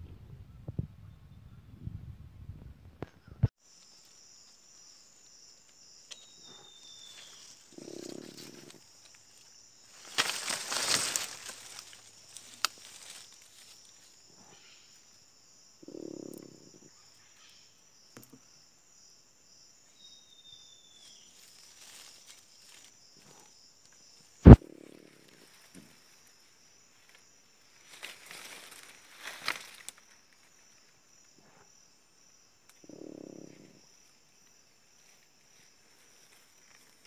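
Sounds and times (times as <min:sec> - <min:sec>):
high insect drone: 0:03.6 - 0:37.0
rustling: 0:07.0 - 0:14.2.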